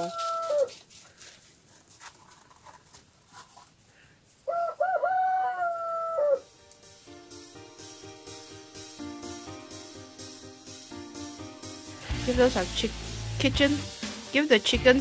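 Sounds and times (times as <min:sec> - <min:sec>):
rooster crowing: 0:00.0 - 0:00.8, 0:04.4 - 0:06.5.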